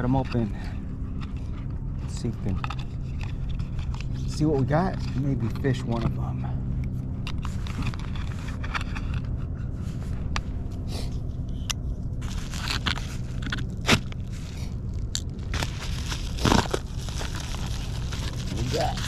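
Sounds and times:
padded mailer crinkling and crunching: 0:01.2 - 0:06.3, 0:07.2 - 0:10.0, 0:12.2 - 0:19.0.

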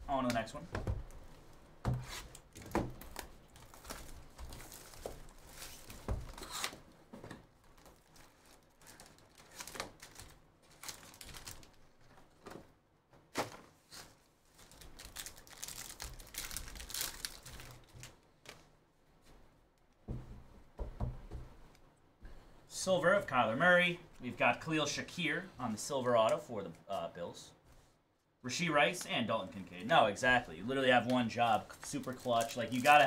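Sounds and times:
plastic and foil crinkling and tearing: 0:02.1 - 0:07.0, 0:07.6 - 0:12.4, 0:13.9 - 0:18.7, 0:30.6 - 0:33.0
cardboard box knocking on table: 0:20.1 - 0:21.5.

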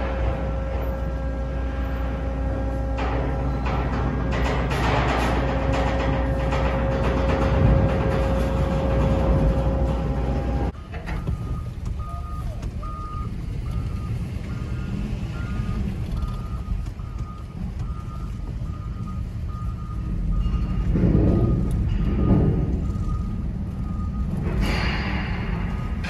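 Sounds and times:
low engine rumble: 0:00.0 - 0:26.0
reversing alarm beeps: 0:08.7 - 0:26.0.

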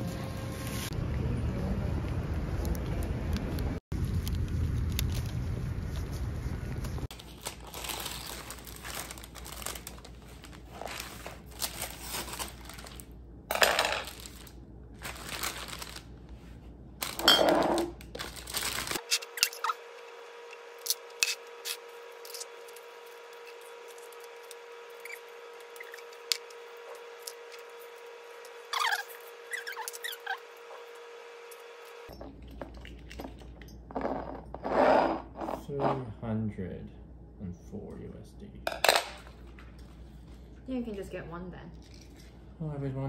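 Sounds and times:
plastic sleeve crinkling: 0:07.1 - 0:13.2, 0:14.0 - 0:16.4, 0:17.0 - 0:19.5.

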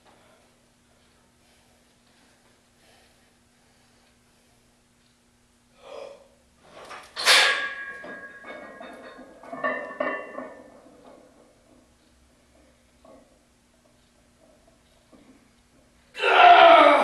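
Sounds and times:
barbell clanking: 0:06.8 - 0:11.9
weight plates clinking and rattling: 0:06.8 - 0:11.9.

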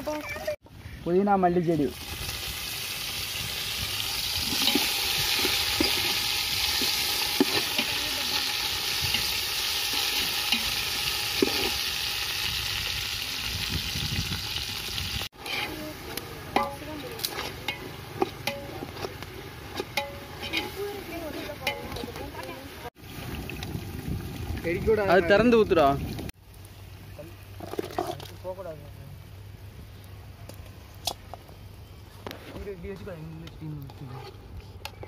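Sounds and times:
leaves sizzling in hot oil: 0:01.5 - 0:32.0
metal ladle scraping pot: 0:04.2 - 0:12.0, 0:15.4 - 0:22.5, 0:27.5 - 0:28.3, 0:33.8 - 0:35.0.

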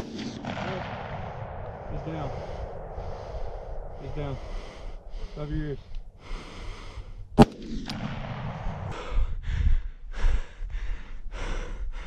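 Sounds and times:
rifle shot: 0:00.0 - 0:05.4, 0:07.4 - 0:09.0.

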